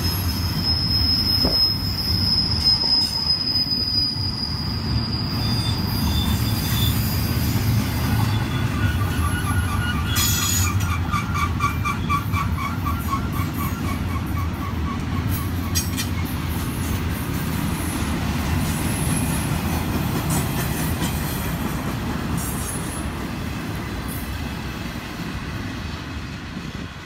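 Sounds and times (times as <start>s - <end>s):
wheel squeals: 0.0s - 16.4s
freight train wheels rumbling: 0.0s - 27.0s.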